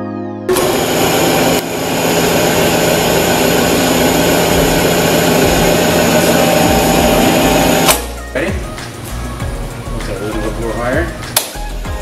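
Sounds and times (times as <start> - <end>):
electric crane hoist humming: 0.5 - 8.2.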